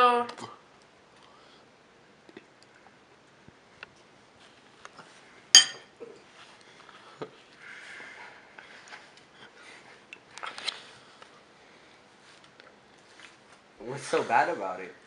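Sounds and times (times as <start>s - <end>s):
tableware clink: 5.5s - 5.9s.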